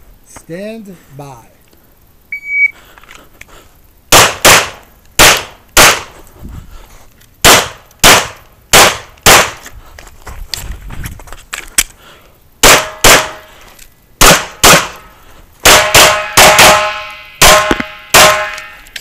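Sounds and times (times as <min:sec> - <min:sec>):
shot timer beep: 0:02.3 - 0:02.8
pistol shots: 0:04.1 - 0:06.1, 0:07.4 - 0:09.6, 0:12.6 - 0:13.4, 0:14.2 - 0:15.0, 0:15.6 - 0:18.8.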